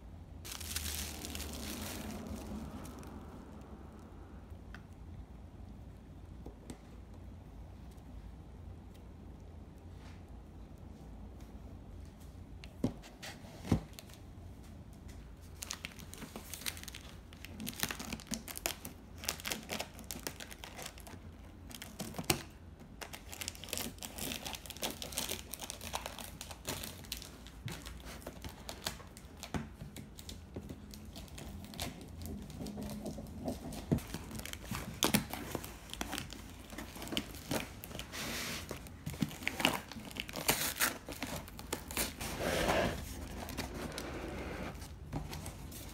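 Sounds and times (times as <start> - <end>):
plastic wrap crinkling: 0.4 - 3.6, 15.4 - 45.9
cardboard flaps scraping: 42.1 - 45.9.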